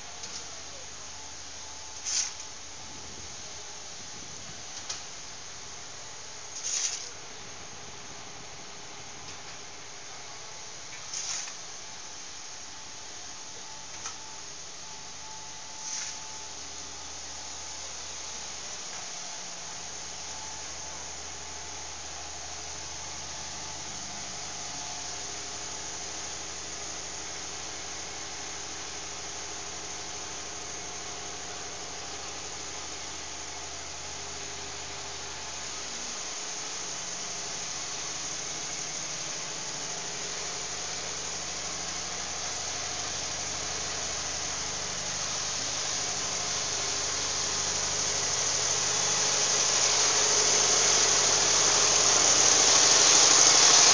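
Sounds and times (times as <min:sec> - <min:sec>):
hiss: 0:01.9 - 0:03.2, 0:06.4 - 0:07.2, 0:10.9 - 0:12.0, 0:15.6 - 0:17.9, 0:22.0 - 0:53.9.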